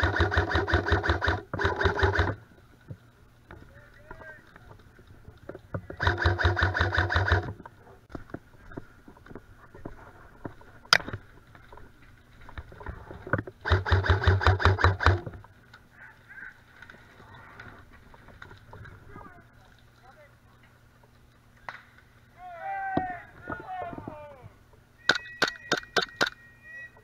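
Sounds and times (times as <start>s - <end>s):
airsoft rifle full-auto bursts: 0.0s - 2.4s, 6.0s - 7.5s, 13.6s - 15.2s.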